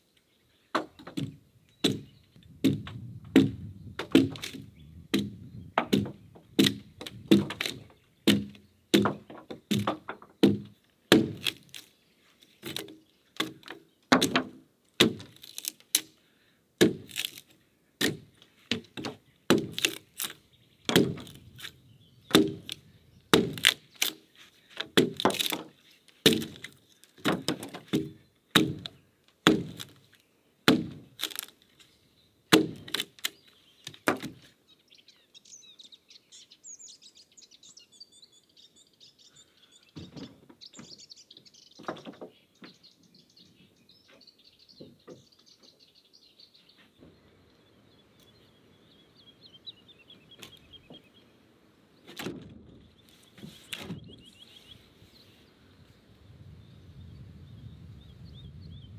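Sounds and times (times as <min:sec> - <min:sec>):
axe chopping into log: 0:00.8 - 0:11.8, 0:12.6 - 0:16.1, 0:16.8 - 0:17.4, 0:18.0 - 0:21.7, 0:22.3 - 0:24.2, 0:24.8 - 0:30.0, 0:30.7 - 0:31.5, 0:32.5 - 0:33.1, 0:34.0 - 0:34.4.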